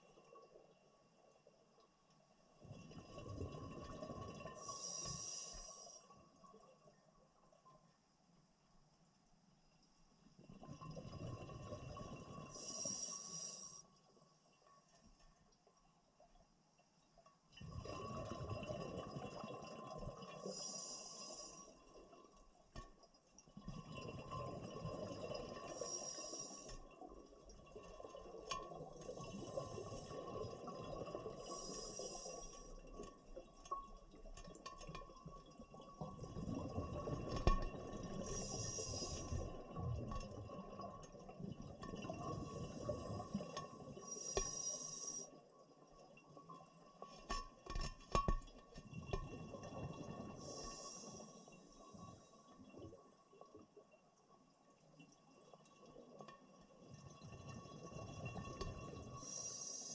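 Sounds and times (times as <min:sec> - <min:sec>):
exhaled bubbles rumbling underwater: 0:02.6 - 0:05.5, 0:10.4 - 0:13.6, 0:17.6 - 0:22.7, 0:23.5 - 0:46.9, 0:48.5 - 0:53.6, 0:55.5 - 0:59.9
regulator hissing inhalation: 0:38.3 - 0:39.3, 0:44.1 - 0:45.3, 0:59.2 - 0:59.9.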